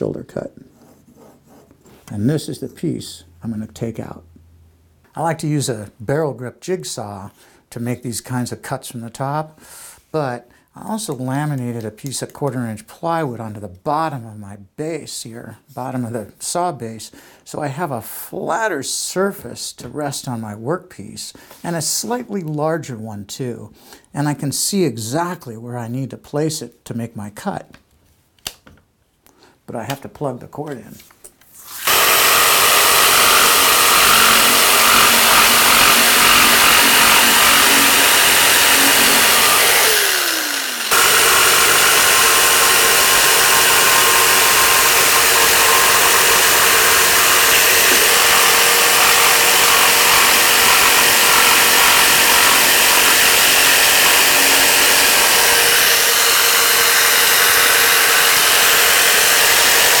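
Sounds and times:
jigsaw cutting wood: 31.7s - 60.0s.

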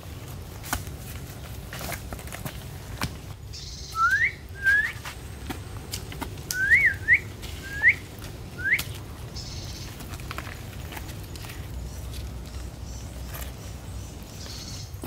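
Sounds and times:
whistled rising notes: 3.6s - 5.0s, 6.5s - 8.0s, 8.6s - 8.8s.

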